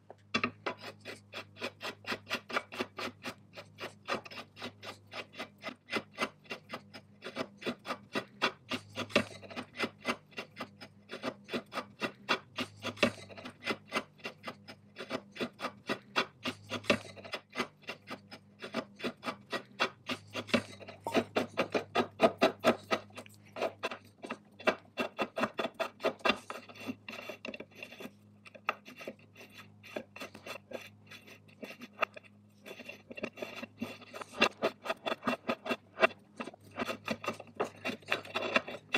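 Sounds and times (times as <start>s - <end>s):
hand tool rasping on metal wheel: 0.4s - 38.9s.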